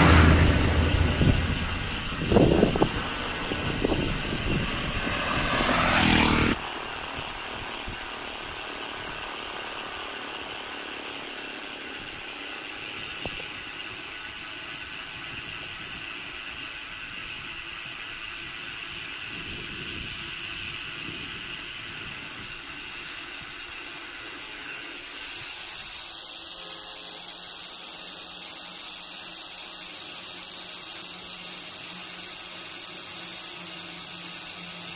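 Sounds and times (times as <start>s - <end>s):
road and wind noise: 0.0s - 26.0s
bicycle freewheel ratcheting: 1.2s - 34.9s.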